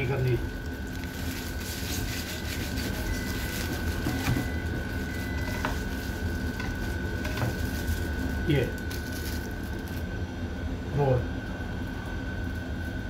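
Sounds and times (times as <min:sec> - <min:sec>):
knife cutting foil-wrapped roll: 0:00.0 - 0:10.0
machinery hum with high whine: 0:00.0 - 0:13.0.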